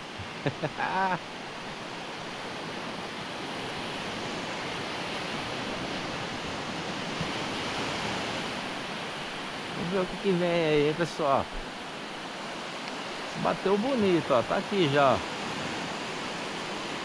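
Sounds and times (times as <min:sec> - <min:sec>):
surf washing onto beach: 0:00.0 - 0:17.0
man's voice: 0:09.8 - 0:11.5, 0:13.4 - 0:15.2.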